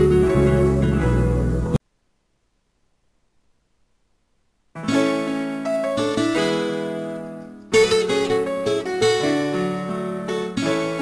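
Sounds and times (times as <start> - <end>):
low bass line: 0.0 - 1.8
plucked strings music: 0.0 - 1.8, 4.8 - 11.0.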